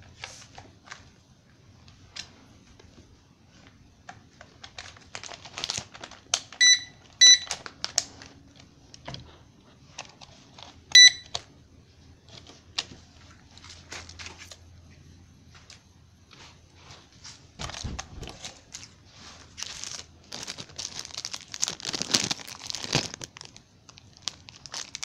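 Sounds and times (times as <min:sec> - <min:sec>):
plastic packaging crinkling: 0:04.2 - 0:08.7, 0:17.6 - 0:25.0
short high electronic beeps: 0:11.0 - 0:11.2.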